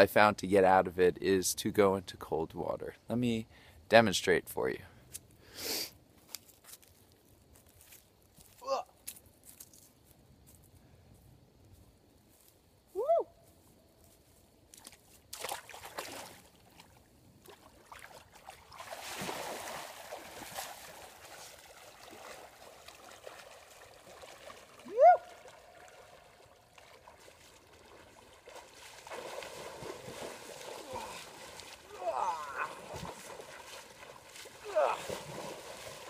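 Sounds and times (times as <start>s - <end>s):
man crying out: 8.6s - 8.9s, 24.9s - 25.3s, 30.8s - 31.3s, 31.9s - 33.0s, 34.6s - 35.2s
water splashing: 15.3s - 36.0s.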